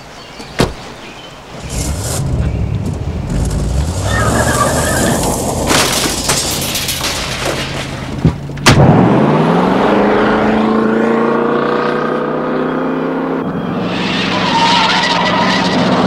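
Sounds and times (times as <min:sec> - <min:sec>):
motorhome engine revving: 0:01.6 - 0:07.0.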